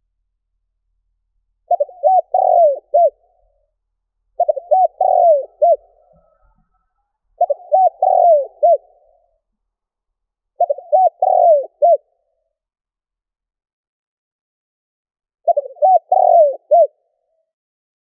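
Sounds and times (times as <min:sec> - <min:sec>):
dove cooing: 0:01.7 - 0:03.5, 0:04.4 - 0:06.6, 0:07.4 - 0:09.2, 0:10.6 - 0:12.1, 0:15.5 - 0:17.0.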